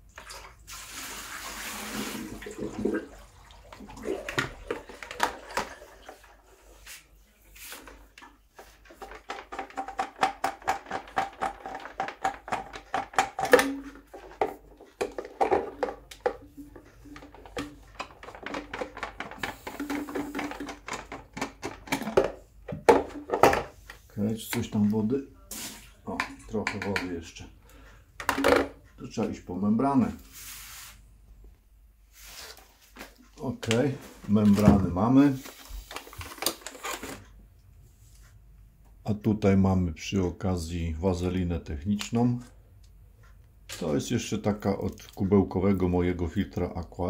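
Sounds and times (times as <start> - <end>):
plastic clicks and rattling: 8.9 - 23.6.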